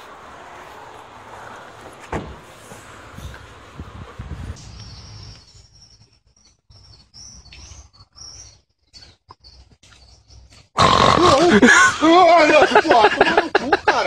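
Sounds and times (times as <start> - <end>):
small birds chirping: 0.0 - 11.6.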